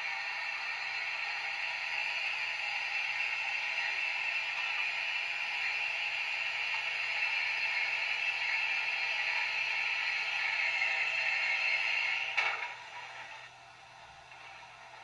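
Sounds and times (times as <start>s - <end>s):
steam locomotive hiss: 0.0s - 15.0s.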